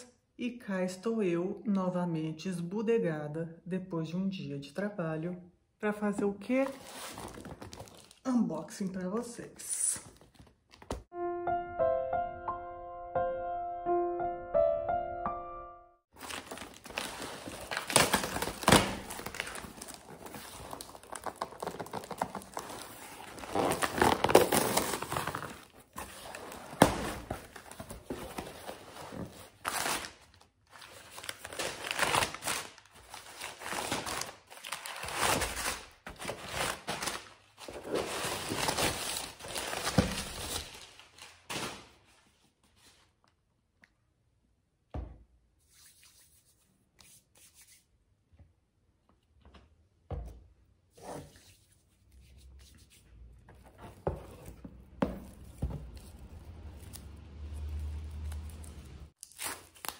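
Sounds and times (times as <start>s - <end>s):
packing paper crinkling: 6.7s - 8.2s, 16.2s - 42.2s.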